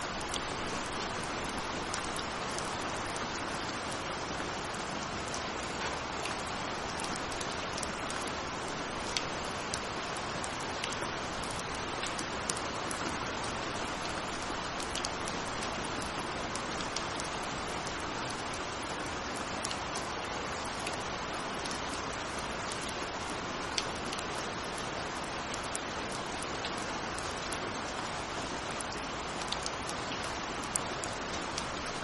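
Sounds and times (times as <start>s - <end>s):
steady rain hiss: 0.0s - 32.0s.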